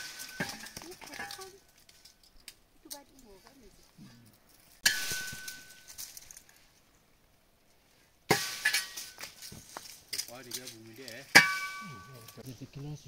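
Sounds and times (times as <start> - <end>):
sharp metallic clinks: 4.2 - 6.5, 10.1 - 12.4.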